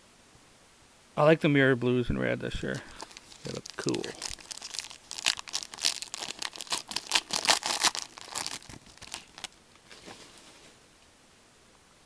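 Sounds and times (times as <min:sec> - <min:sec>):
foil wrapper crinkling and tearing: 0:02.6 - 0:10.3.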